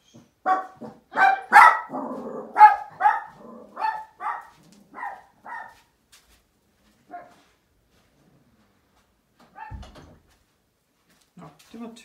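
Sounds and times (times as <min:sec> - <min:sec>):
small dog barking: 0:00.4 - 0:05.9, 0:07.1 - 0:07.4, 0:09.5 - 0:09.8.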